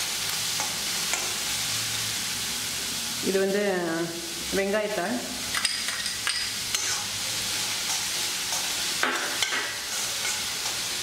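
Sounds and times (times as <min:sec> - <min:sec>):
vegetables sizzling in hot oil: 0:00.0 - 0:11.0
metal spoon scraping a pan: 0:05.5 - 0:11.0.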